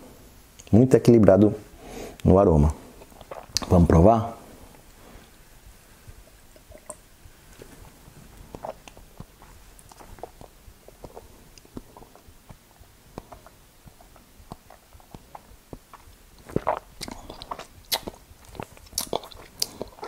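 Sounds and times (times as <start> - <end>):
wet mouth clicks and lip smacks: 3.0 - 3.7, 8.5 - 20.0.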